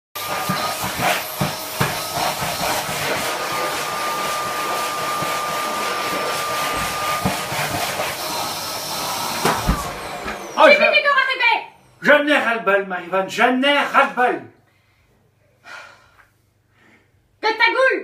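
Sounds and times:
vacuum cleaner motor whining: 0.2 - 11.4.

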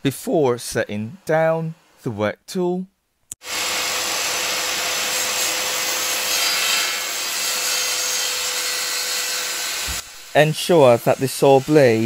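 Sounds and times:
circular saw cutting wood: 3.4 - 12.0.

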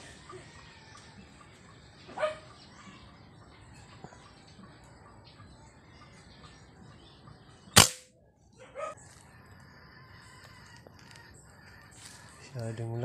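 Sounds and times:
gunshot: 7.8 - 8.1.

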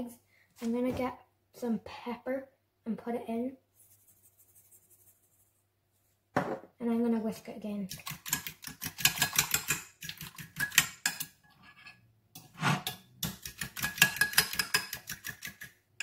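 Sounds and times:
fork clicking against bowl: 12.4 - 15.7.

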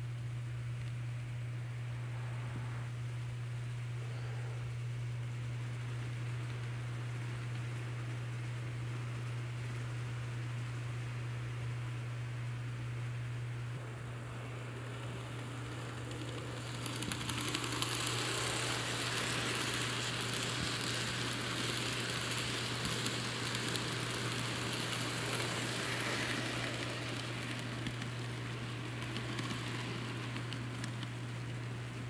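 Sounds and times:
steady low hum: 0.0 - 32.0
model train wheels clicking on rails: 5.5 - 11.8, 13.8 - 32.0.

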